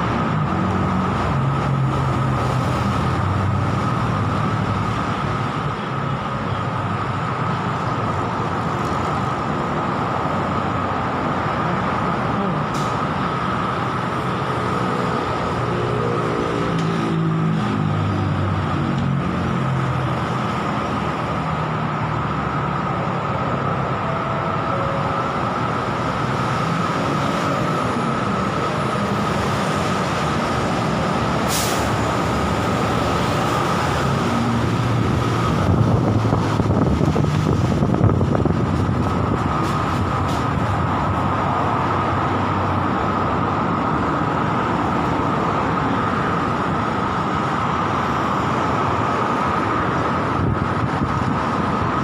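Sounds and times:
heavy vehicle slowing: 0:00.0 - 0:52.0
traffic noise: 0:00.0 - 0:52.0.

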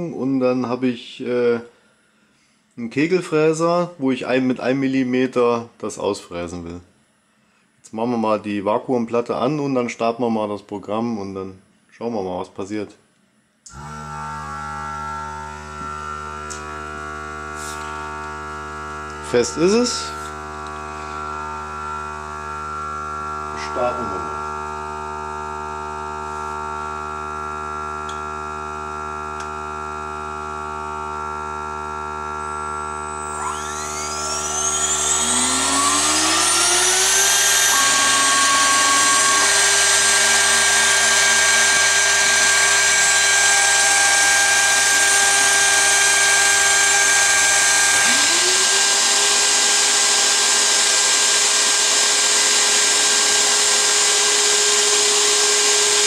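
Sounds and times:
router bit cutting wood: 0:13.7 - 0:56.0
router spindle high whine: 0:13.7 - 0:56.0
vacuum pump hum: 0:13.7 - 0:56.0.

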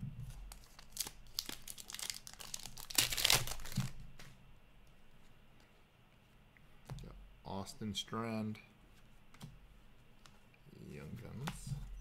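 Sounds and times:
wrapper tearing and crinkling: 0:00.5 - 0:04.0.

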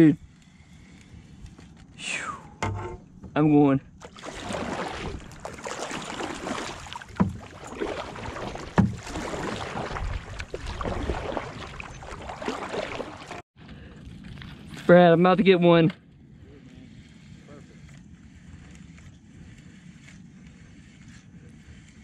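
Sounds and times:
paddle splashing water: 0:04.0 - 0:13.4.

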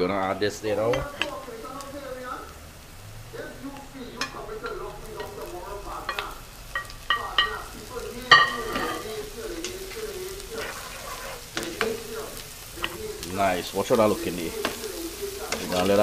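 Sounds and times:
fish sizzling in a frying pan: 0:00.0 - 0:16.0
wooden spoon scraping a pan: 0:04.1 - 0:16.0.

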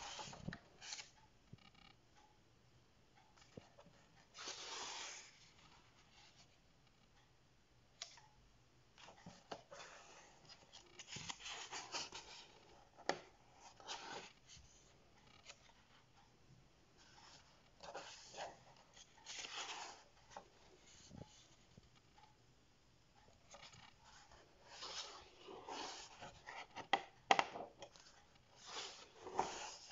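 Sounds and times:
paper pages turning: 0:00.0 - 0:01.2, 0:09.0 - 0:14.8, 0:17.0 - 0:21.6, 0:23.5 - 0:29.9.

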